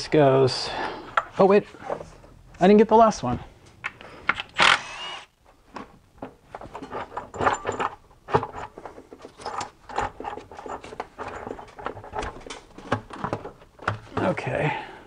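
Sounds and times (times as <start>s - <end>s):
metal part knocking and scraping: 6.2s - 14.0s.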